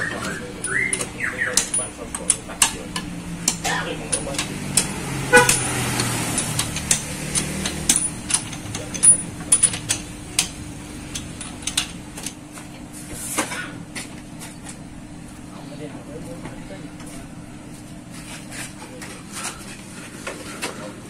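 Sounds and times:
lug wrench clinking on wheel nuts: 0.0 - 12.4.

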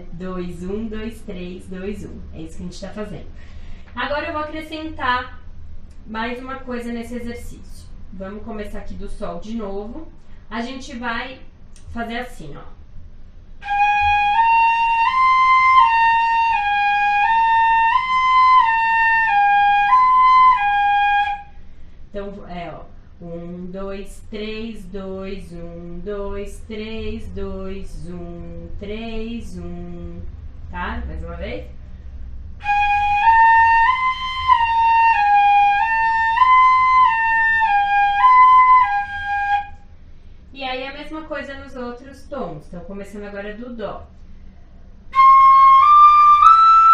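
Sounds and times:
fife playing slow notes: 13.6 - 21.6
fife playing a scale: 45.2 - 46.9.

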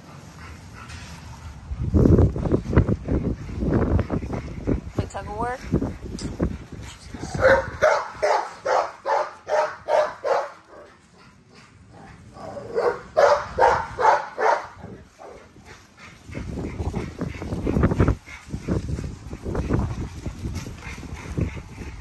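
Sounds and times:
puppy barking in high yaps: 7.4 - 10.6, 12.8 - 14.7.

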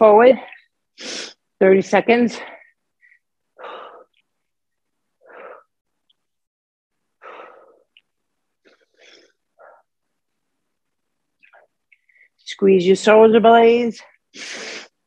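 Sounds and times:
woman breathing heavily: 2.3 - 4.4, 5.2 - 5.8, 7.2 - 8.0, 8.6 - 10.0.

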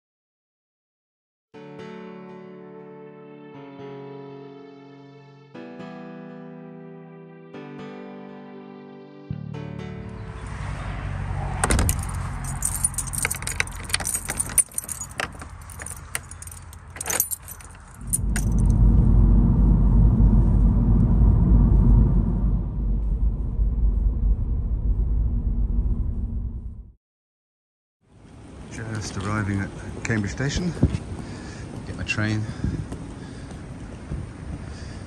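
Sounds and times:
car road noise: 10.0 - 26.9
tyres and engine rumbling: 10.1 - 26.9
metallic jingling and clicking: 11.6 - 18.7.

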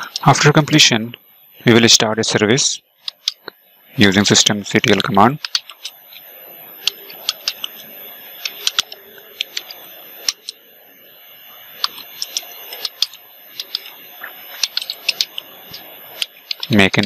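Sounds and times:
keyboard typing clicks: 4.9 - 6.0, 6.8 - 7.8, 8.4 - 10.6, 11.8 - 16.8.

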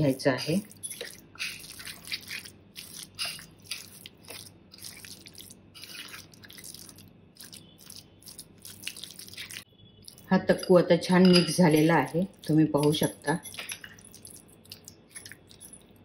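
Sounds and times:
spoon stirring in glass bowl: 0.0 - 16.0.

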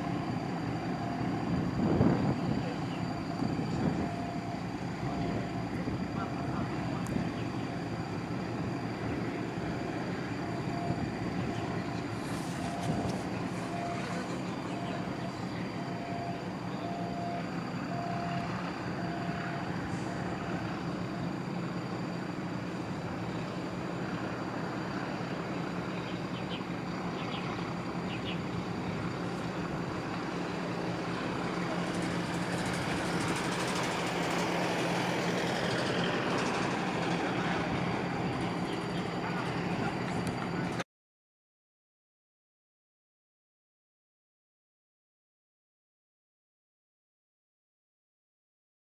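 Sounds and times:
reversing alarm beeping: 0.0 - 23.6
heavy engine humming: 0.0 - 40.8.

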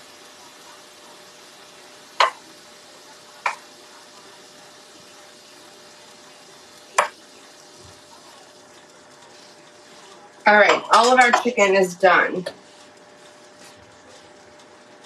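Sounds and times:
chicken sizzling in skillet: 0.0 - 15.0
metal tongs clacking on pan: 2.2 - 2.4, 3.4 - 3.6, 10.6 - 11.6.

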